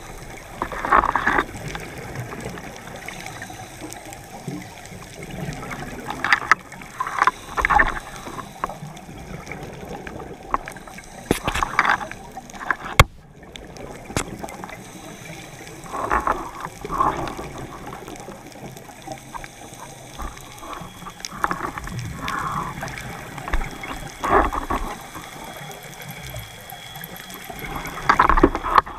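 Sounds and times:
exhaled bubbles underwater: 0.0s - 28.9s
regulator hiss: 2.8s - 5.0s, 7.0s - 9.2s, 14.6s - 16.7s.

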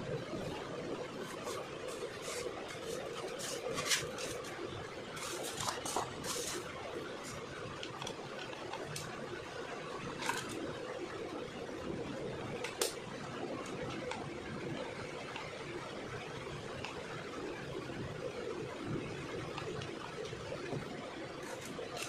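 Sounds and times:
steady background hum: 0.0s - 22.0s
hands handling plastic and foam: 1.1s - 9.1s, 21.4s - 22.0s.

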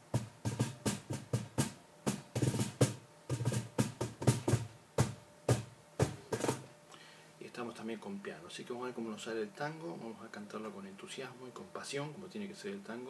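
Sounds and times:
cajon slapped by hand: 0.1s - 6.7s.

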